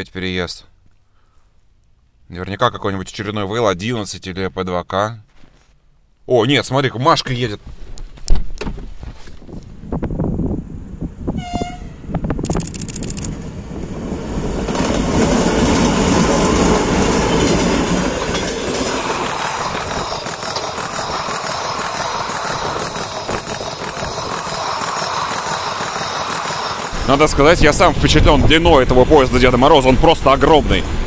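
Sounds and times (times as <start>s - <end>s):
diesel locomotive engine: 10.6s - 31.0s
train cars rolling clickety-clack: 12.6s - 28.4s.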